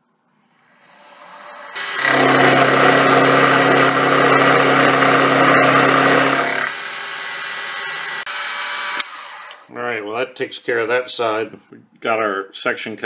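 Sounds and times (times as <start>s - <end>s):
spindle motor hum: 0.8s - 8.2s
milling machine cutting noise: 0.8s - 9.6s.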